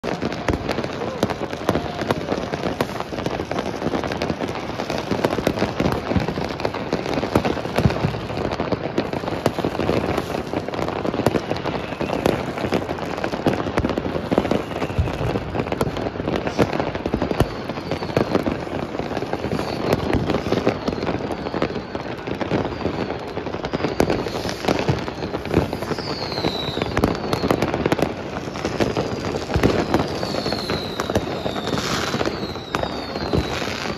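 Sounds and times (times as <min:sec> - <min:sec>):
falling firework whistles: 0:00.0 - 0:33.9
fireworks and firecrackers banging: 0:00.0 - 0:33.9.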